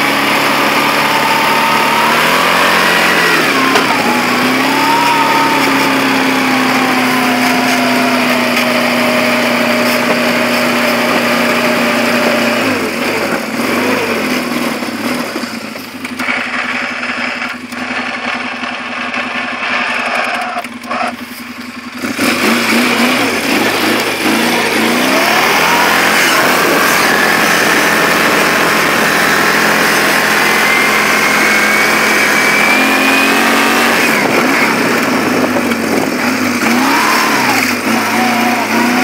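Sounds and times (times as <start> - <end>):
atv engine idling and revving: 0.0 - 39.0.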